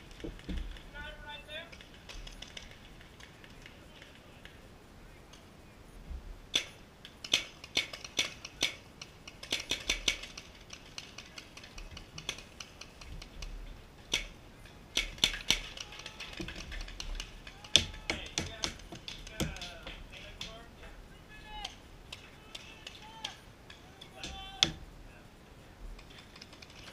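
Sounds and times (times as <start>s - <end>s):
paintball markers firing: 6.5s - 20.6s.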